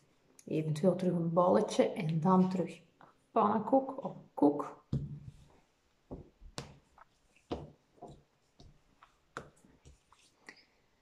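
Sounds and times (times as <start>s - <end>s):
hands patting clay on a table: 4.9s - 10.5s.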